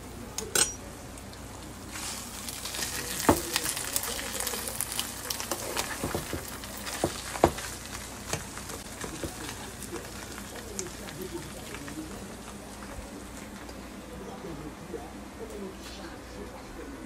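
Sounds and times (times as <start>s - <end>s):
food sizzling in a frying pan: 1.1s - 13.7s.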